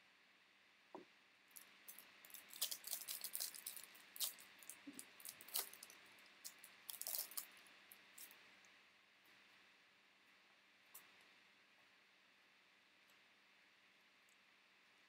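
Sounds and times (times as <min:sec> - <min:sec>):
trading cards crinkling and rustling: 0:02.0 - 0:07.6.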